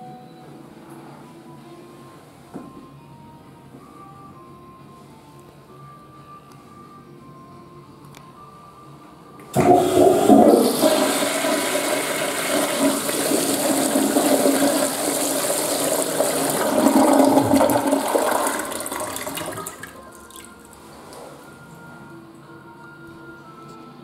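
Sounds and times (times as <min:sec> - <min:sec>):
toilet flushing: 0:09.5 - 0:20.7.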